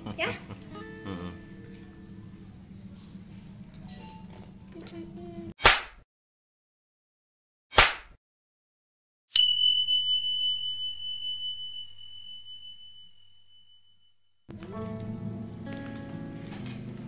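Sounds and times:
high bell ding: 9.4s - 14.1s.

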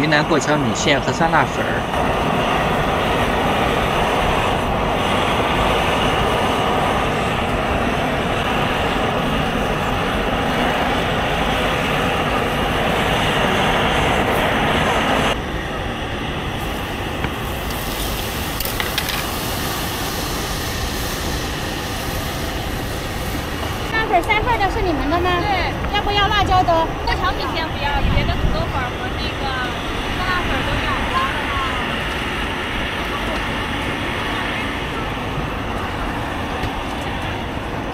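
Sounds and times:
crowd murmur: 23.1s - 36.8s.

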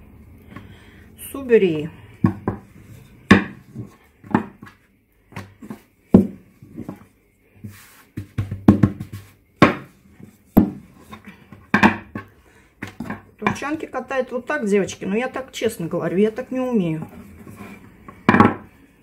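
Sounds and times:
rolling pin knocking on table: 2.2s - 2.7s, 3.3s - 3.6s, 4.3s - 4.8s, 5.4s - 7.0s, 8.2s - 9.9s, 10.6s - 10.9s, 11.6s - 13.7s, 18.2s - 18.7s.

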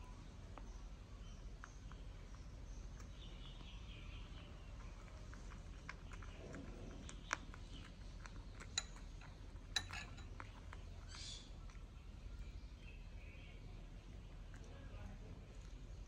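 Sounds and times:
metal spoon clinking against bowl: 8.6s - 10.6s.

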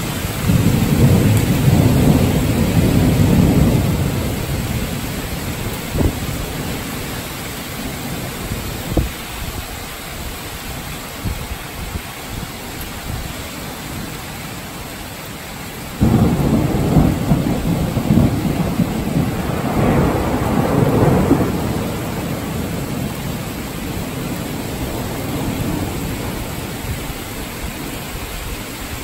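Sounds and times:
thunder clap and rumble: 0.0s - 9.7s, 16.0s - 27.6s
heavy rain: 0.0s - 29.0s.

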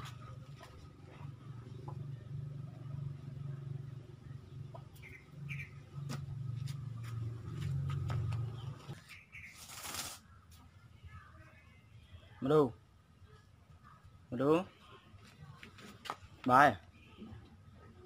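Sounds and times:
rustling scrape: 9.5s - 10.2s.

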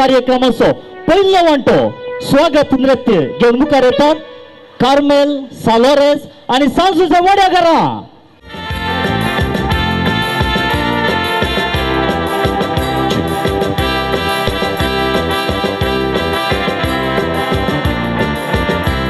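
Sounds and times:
keyboard playing organ chords: 0.0s - 5.6s, 8.4s - 19.0s
rhythmic bass accompaniment: 8.4s - 19.0s.

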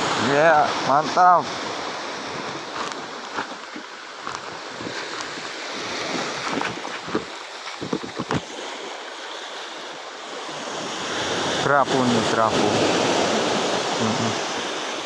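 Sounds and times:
wind on microphone: 0.0s - 8.9s
sea surf rushing: 0.0s - 15.0s.

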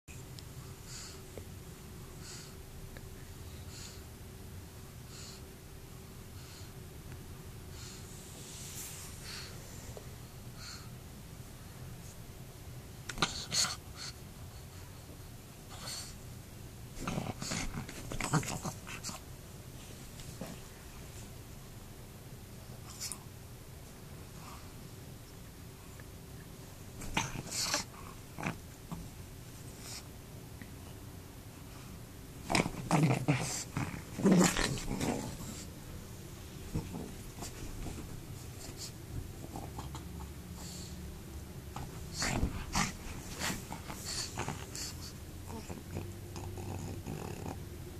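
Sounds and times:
dog growling: 17.0s - 19.2s, 27.0s - 28.7s, 32.4s - 35.7s, 36.7s - 37.5s, 39.4s - 40.4s, 41.8s - 47.8s
paws scuffling on blanket: 36.6s - 39.0s, 41.8s - 45.2s
dog making breathy noises: 41.8s - 47.6s.

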